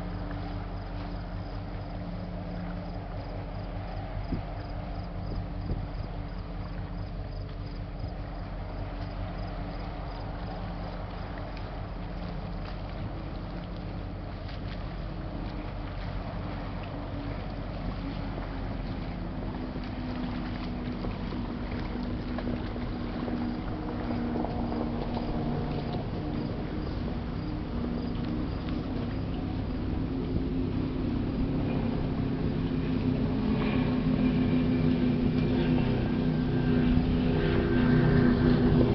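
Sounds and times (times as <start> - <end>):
ship engine drone: 0.0 - 38.9.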